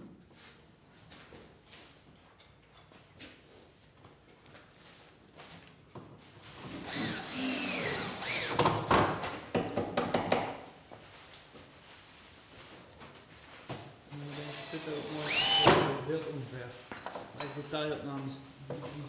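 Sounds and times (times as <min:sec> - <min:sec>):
cordless drill driving screws: 0:06.7 - 0:08.8, 0:14.2 - 0:16.0.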